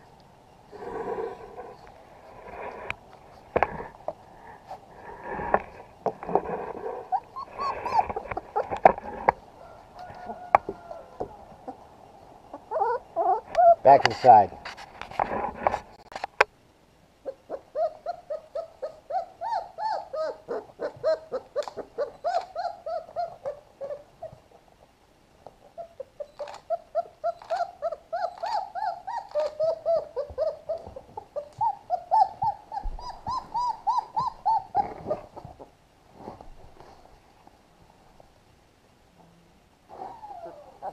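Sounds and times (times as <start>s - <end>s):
puppies whimpering and whining: 6.7s - 9.3s, 12.5s - 13.8s, 17.2s - 24.4s, 25.7s - 35.7s, 39.9s - 40.9s.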